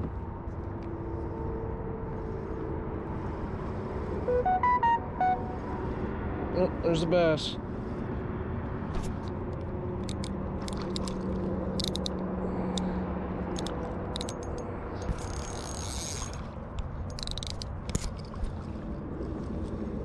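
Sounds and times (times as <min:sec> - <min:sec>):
reel and handling clicks: 0:09.0 - 0:18.7
fishing reel being cranked: 0:10.0 - 0:12.8, 0:13.5 - 0:18.3.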